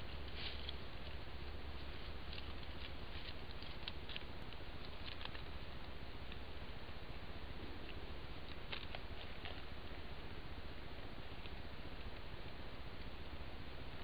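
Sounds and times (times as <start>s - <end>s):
deer stepping in leaf litter: 0.0s - 4.3s
microphone hiss: 0.0s - 14.0s.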